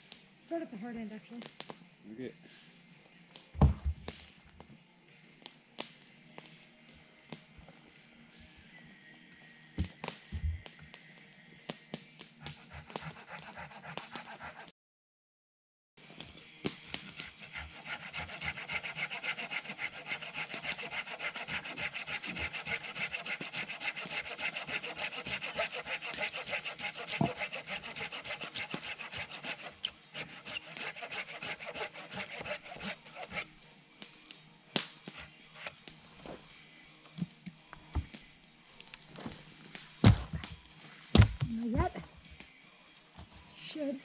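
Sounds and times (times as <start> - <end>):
hand saw cutting a log: 12.4 - 14.7, 16.8 - 33.5, 35.1 - 35.8.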